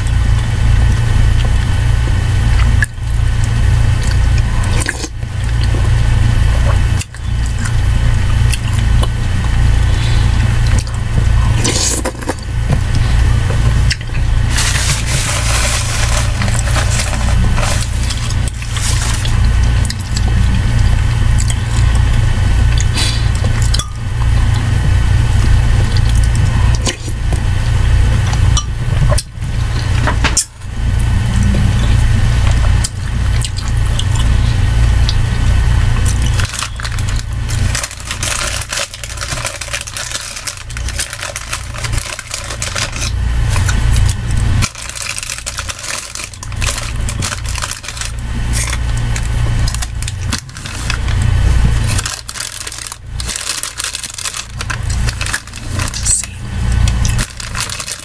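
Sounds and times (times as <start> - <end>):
loud steady low hum: 0.0 - 58.0
slurping: 2.6 - 58.0
chewing: 6.5 - 27.2, 28.2 - 35.3, 36.0 - 58.0.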